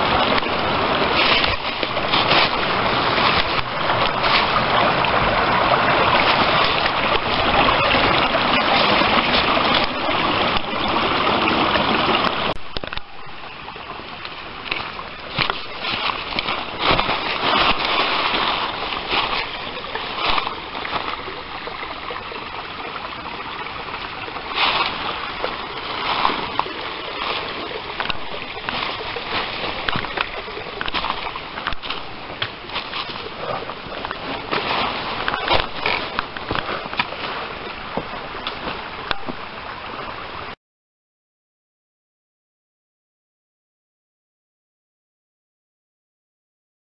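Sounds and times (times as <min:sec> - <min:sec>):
footsteps crunching through dry leaves: 0:15.3 - 0:21.2.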